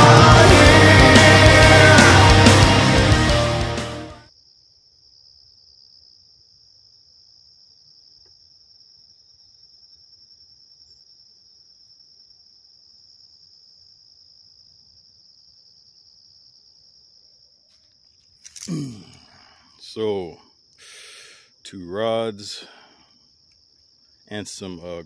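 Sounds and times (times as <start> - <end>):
insect chorus trilling: 4.3 - 25.0.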